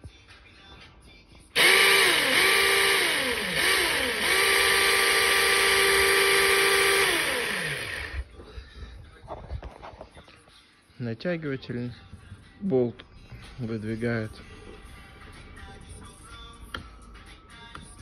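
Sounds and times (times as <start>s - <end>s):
electric chainsaw motor whine: 1.6s - 8.3s.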